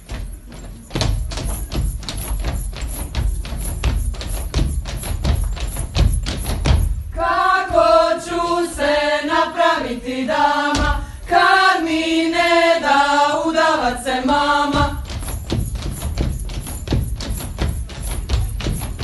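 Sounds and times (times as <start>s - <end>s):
dance steps on wooden floor: 0.0s - 8.8s, 10.7s - 11.4s, 13.8s - 19.0s
women singing folk song: 7.1s - 15.4s.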